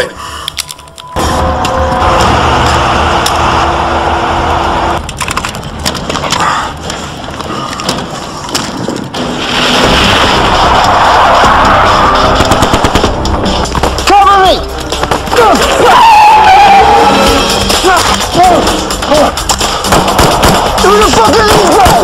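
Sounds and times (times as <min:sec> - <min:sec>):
road and tyre noise: 0:01.0 - 0:15.3.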